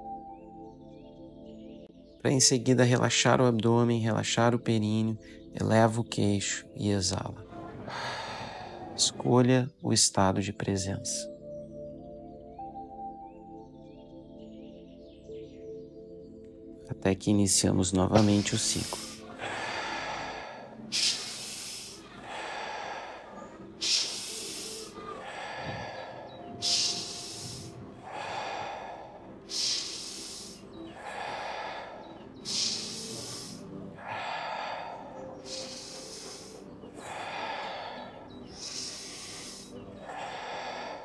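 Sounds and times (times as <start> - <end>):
person breathing through nose: 7.9 - 9.1, 18.2 - 41.0.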